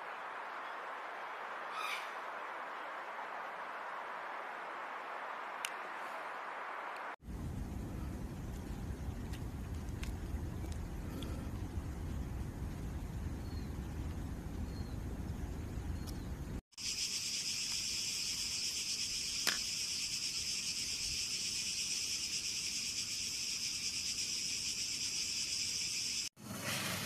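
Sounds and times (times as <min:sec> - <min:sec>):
low rumbling noise: 0:06.3 - 0:16.6
high-pitched insect chorus: 0:16.8 - 0:26.3.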